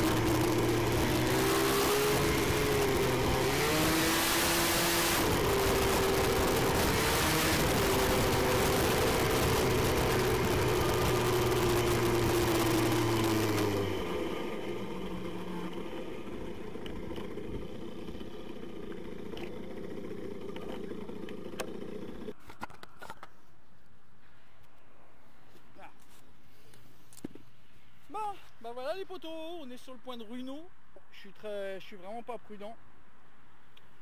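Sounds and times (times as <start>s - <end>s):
two-stroke moped engine running: 0.0s - 22.4s.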